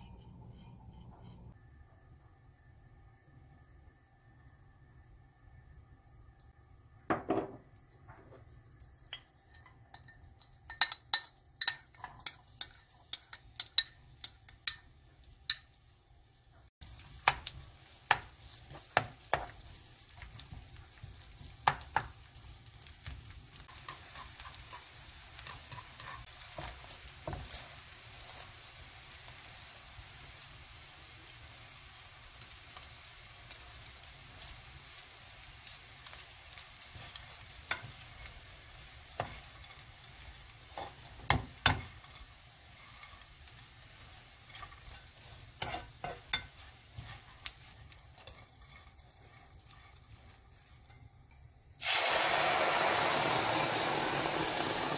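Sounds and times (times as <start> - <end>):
garlic sizzling in oil: 7.1 - 54.9
utensils clinking on pan: 8.9 - 15.8, 23.0 - 28.6, 35.4 - 51.6
wooden spatula scraping pan: 23.7 - 28.5, 39.1 - 51.4.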